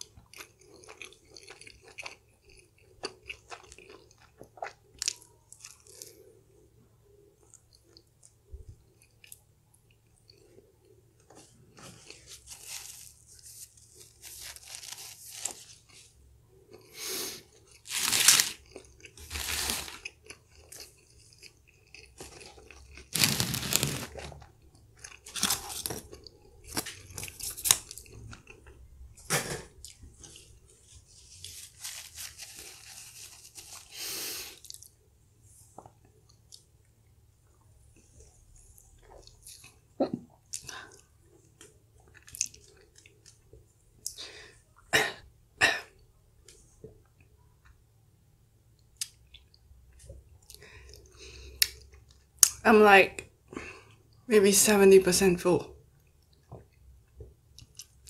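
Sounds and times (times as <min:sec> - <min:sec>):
chewing crispy food: 0:00.0 - 0:06.5, 0:07.4 - 0:16.1, 0:17.5 - 0:28.9, 0:29.8 - 0:35.0, 0:35.8 - 0:44.3, 0:55.9 - 0:58.0.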